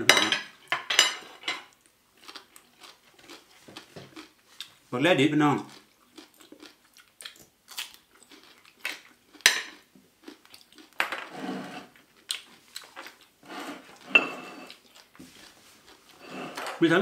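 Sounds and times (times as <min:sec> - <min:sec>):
cutlery clinking on plates: 0:00.0 - 0:01.7, 0:09.4 - 0:09.8, 0:14.0 - 0:14.8.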